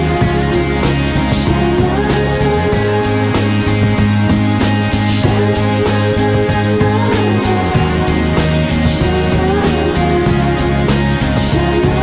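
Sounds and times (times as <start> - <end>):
song with bass line and beat: 0.0 - 12.0.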